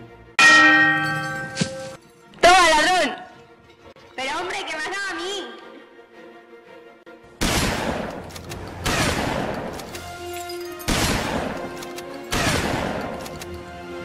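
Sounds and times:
music soundtrack: 0:00.0 - 0:14.0.

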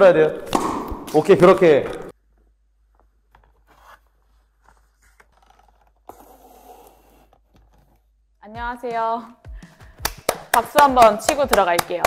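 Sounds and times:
box scraping: 0:03.6 - 0:07.9.

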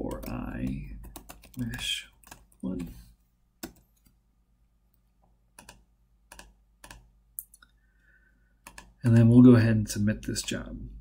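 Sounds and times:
computer mouse clicks: 0:05.6 - 0:07.8, 0:08.6 - 0:09.0.

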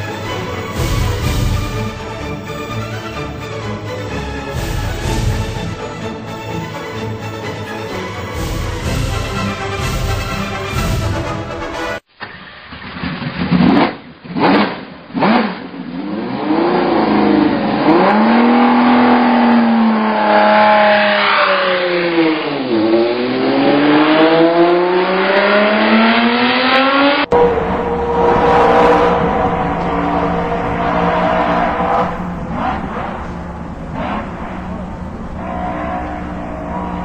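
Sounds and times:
racing car engine revving: 0:13.4 - 0:37.0
racing engine steady high note: 0:15.6 - 0:37.0.

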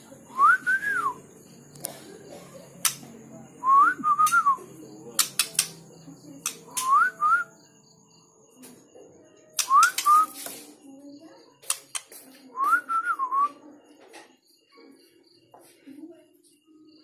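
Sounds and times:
sharp clicks: 0:05.2 - 0:05.8.

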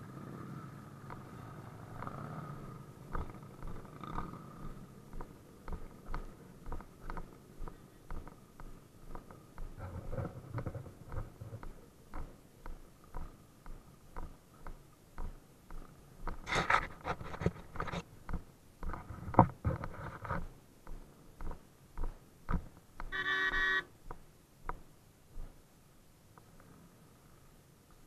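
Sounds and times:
light ticks and knocks: 0:03.1 - 0:23.2
scrapes: 0:16.4 - 0:18.1
motorcycle horn toot: 0:23.1 - 0:23.9.

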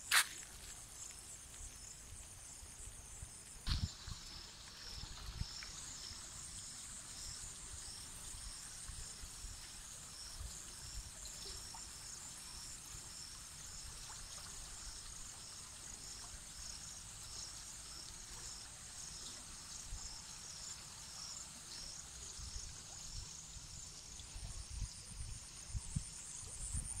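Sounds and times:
insect chirping: 0:00.0 - 0:27.0
insects trilling: 0:00.0 - 0:27.0
wind rumble on microphone: 0:24.3 - 0:27.0.

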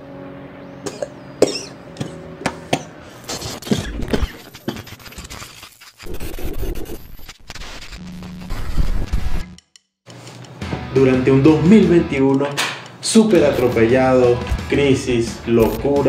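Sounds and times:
crackly static bursts: 0:03.4 - 0:09.6.

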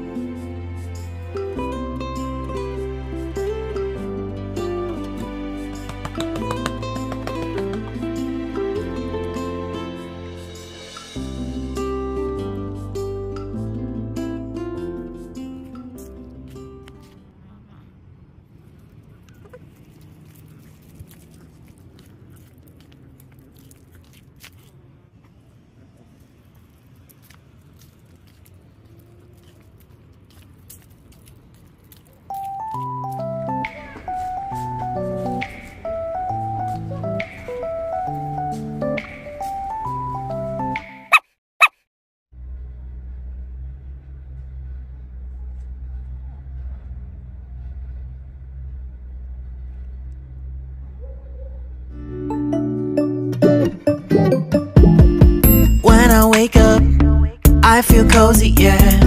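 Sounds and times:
vehicle engine rumble: 0:00.0 - 0:40.8, 0:42.3 - 0:52.2, 0:55.4 - 0:59.0
soft bites and crunches: 0:18.5 - 0:32.9.

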